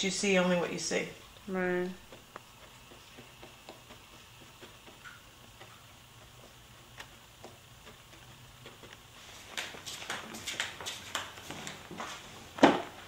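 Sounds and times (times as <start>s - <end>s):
paintbrush ticking on canvas: 1.3s - 11.4s.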